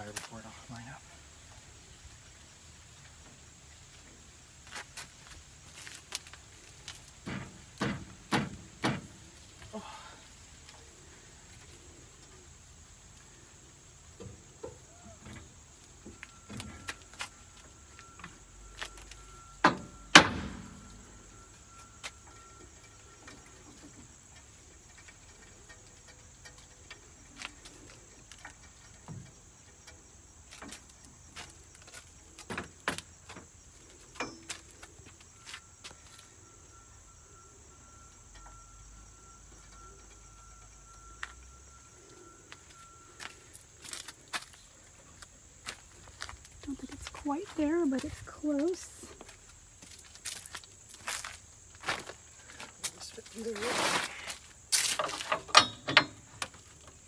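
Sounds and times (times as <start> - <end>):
metal clanks and knocks: 7.2 - 9.3, 34.1 - 34.8, 55.0 - 57.0.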